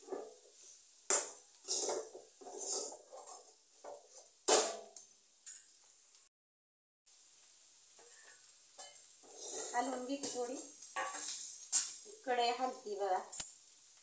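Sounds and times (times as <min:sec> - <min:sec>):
spoon scraping a pan: 0:00.0 - 0:04.8, 0:08.0 - 0:12.2.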